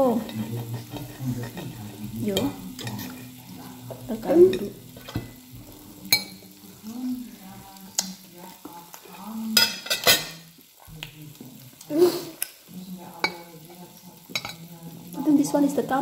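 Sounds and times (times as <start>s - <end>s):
cutlery scraping on a plate: 0.2s - 5.4s, 9.5s - 10.5s, 13.2s - 14.7s.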